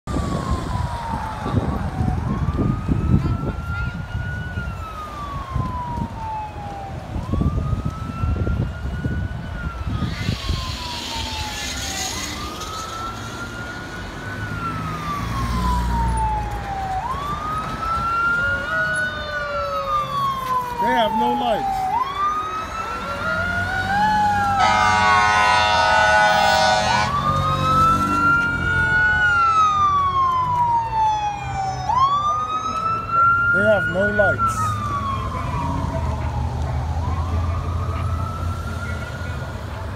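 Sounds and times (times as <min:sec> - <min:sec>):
fire engine siren wailing: 0:00.1 - 0:39.9
fire engine horn blast: 0:24.4 - 0:27.5.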